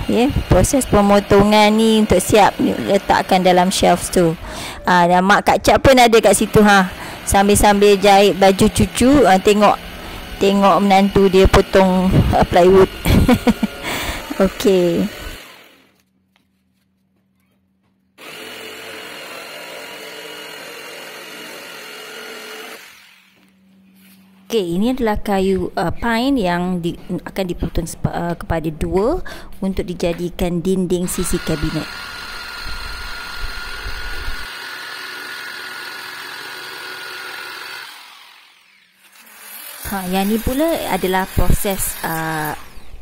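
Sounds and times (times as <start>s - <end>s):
jigsaw cutting plywood: 0.0s - 4.7s, 6.2s - 16.0s, 18.2s - 23.4s, 31.1s - 43.0s.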